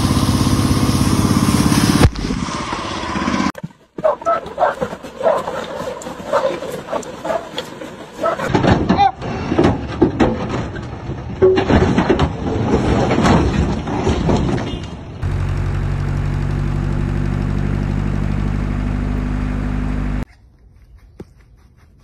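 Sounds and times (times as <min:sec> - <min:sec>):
rough vehicle noise with knocks: 0:02.0 - 0:20.2
truck engine idling: 0:15.2 - 0:20.2.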